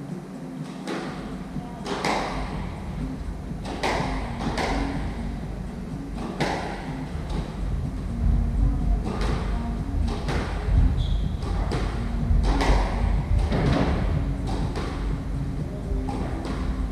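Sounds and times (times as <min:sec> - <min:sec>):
squash ball hits echoing: 0:00.6 - 0:16.9.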